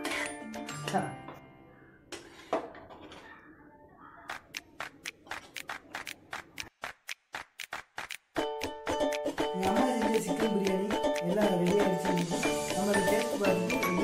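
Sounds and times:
music: 0.0s - 1.6s, 8.4s - 14.0s.

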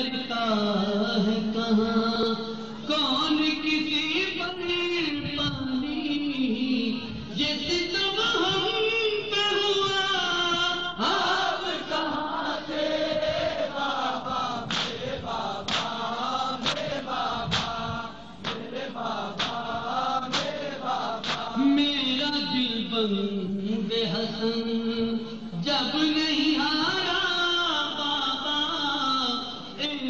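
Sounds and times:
men chanting in unison: 9.7s - 29.8s
hands slapping bare chests: 14.7s - 15.0s, 15.7s - 16.0s, 17.5s - 17.8s, 19.4s - 19.7s, 20.3s - 20.6s, 21.2s - 21.5s.

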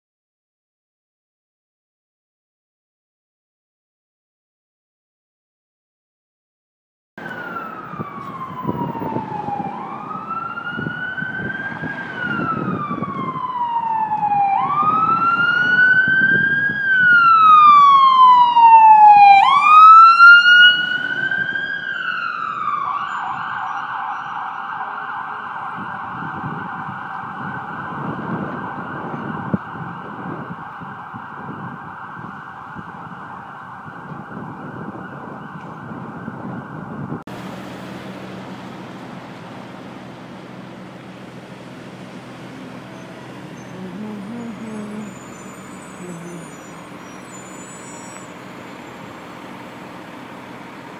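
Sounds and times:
emergency siren wailing and yelping: 7.2s - 37.2s, 40.6s - 50.9s
traffic rumble: 7.2s - 50.9s.

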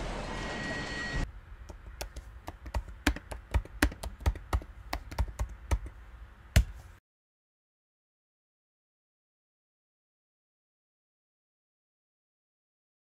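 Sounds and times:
keyboard typing: 1.7s - 5.9s.

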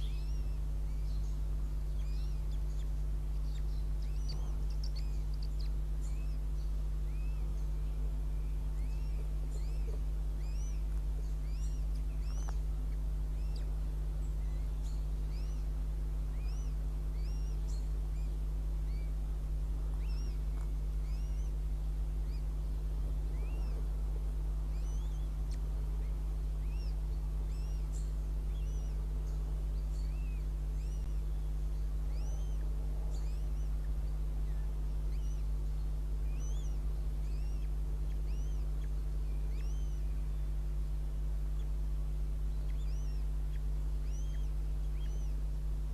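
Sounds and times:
chicks peeping: 0.0s - 7.8s
low electrical hum: 0.0s - 45.9s
nestlings begging peeps: 0.0s - 45.9s.

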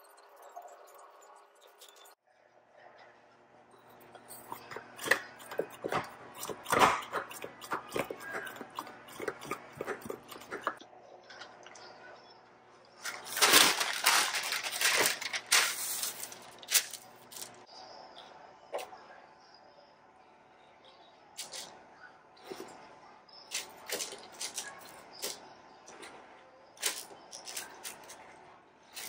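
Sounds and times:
parchment paper crinkling: 13.0s - 17.6s.

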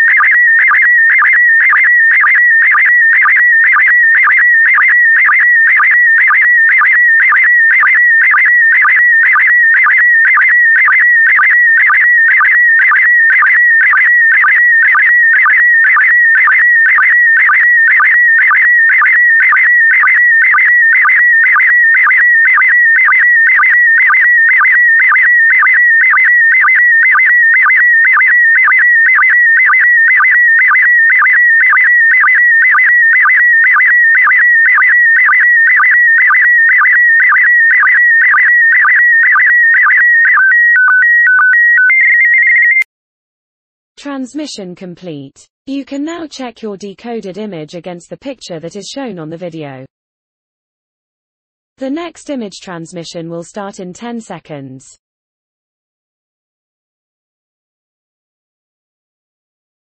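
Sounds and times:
regular sync pulse beat: 0.0s - 40.6s
warbling image signal tone: 0.0s - 42.9s.

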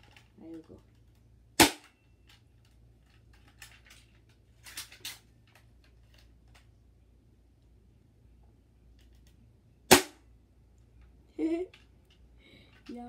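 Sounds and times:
bb pistol shot crack: 1.6s - 1.9s, 9.9s - 10.2s.

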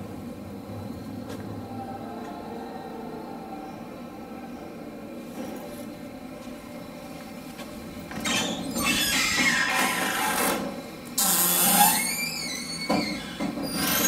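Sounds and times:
screen door hinges squeaking: 8.1s - 14.0s.

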